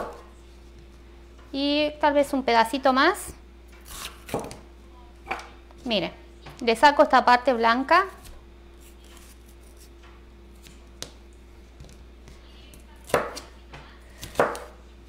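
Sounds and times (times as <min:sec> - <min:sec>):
knife cutting pepper on board: 0:14.2 - 0:14.7.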